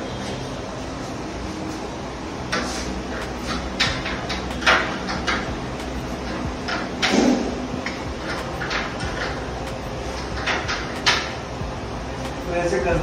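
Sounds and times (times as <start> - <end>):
heavy clunk: 6.3 - 9.4.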